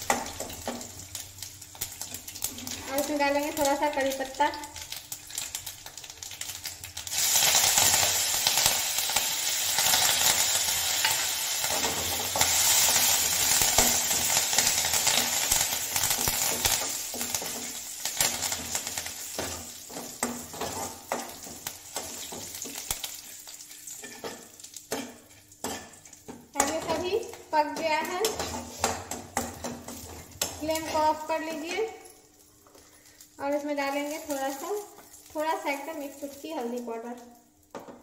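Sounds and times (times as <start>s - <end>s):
leaves sizzling in hot oil: 0.0s - 38.0s
metal spoon scraping a pan: 21.9s - 27.0s, 27.7s - 31.9s.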